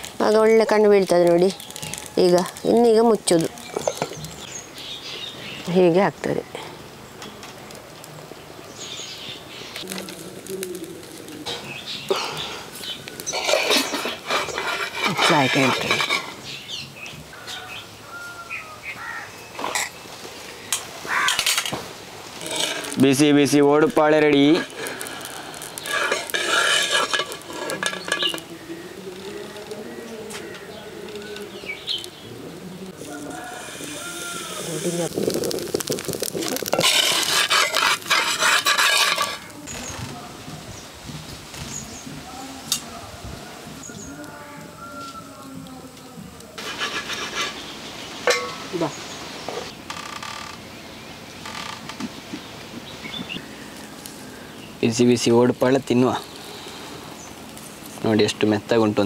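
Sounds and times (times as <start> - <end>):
birds chirping: 0.0 - 21.5, 22.4 - 37.5, 39.1 - 42.7, 43.5 - 46.6, 47.3 - 59.0
metal spatula scraping clay pan: 13.2 - 16.6, 22.4 - 23.4, 24.1 - 28.5, 34.0 - 39.6, 46.6 - 48.6.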